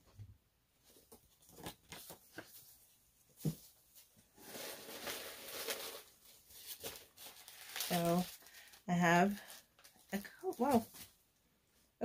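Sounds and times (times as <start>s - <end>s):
paper crinkling: 0.9s - 2.9s, 3.9s - 11.2s
packaging rustling: 4.0s - 11.2s.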